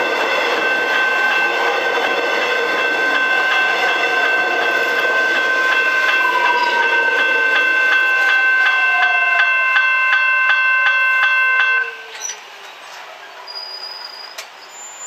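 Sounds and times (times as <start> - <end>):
level crossing bells ringing: 0.0 - 12.0
electric train whine: 0.0 - 14.7.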